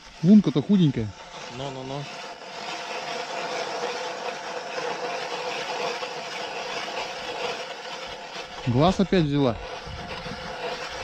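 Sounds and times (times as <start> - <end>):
petrol ice auger running: 0.0 - 11.0.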